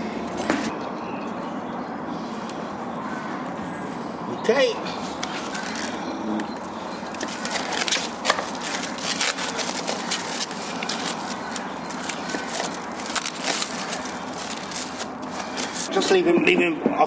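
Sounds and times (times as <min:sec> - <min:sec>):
cling film crinkling: 0:06.7 - 0:15.9.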